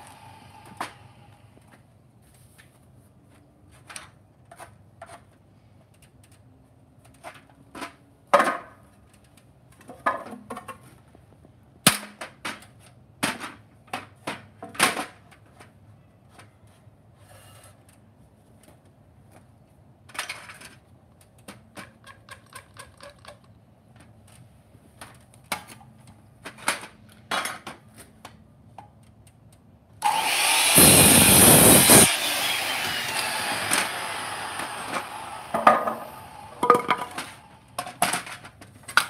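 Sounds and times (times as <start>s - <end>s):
wood and tools knocking on stand: 35.5s - 37.3s.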